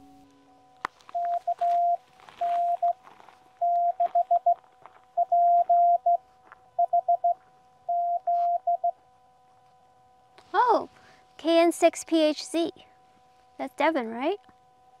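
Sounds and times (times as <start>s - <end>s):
faint steady hum: 0.0s - 15.0s
morse code tone: 1.1s - 3.0s, 3.6s - 4.6s, 5.2s - 6.2s, 6.8s - 9.0s.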